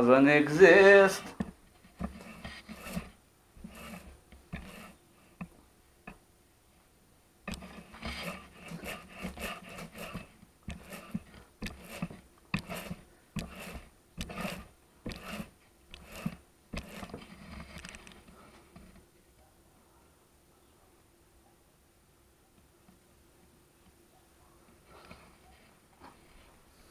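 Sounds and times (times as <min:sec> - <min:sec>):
paint roller rubbing in tray: 0:01.0 - 0:05.0, 0:07.5 - 0:18.0.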